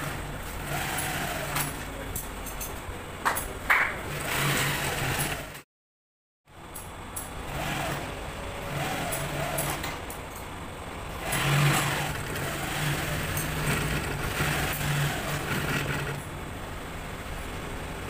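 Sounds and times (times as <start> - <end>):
sewing machine motor humming: 0.0 - 1.8, 4.1 - 5.6, 7.5 - 10.0, 11.1 - 16.4
sewing machine clicks: 11.2 - 16.3.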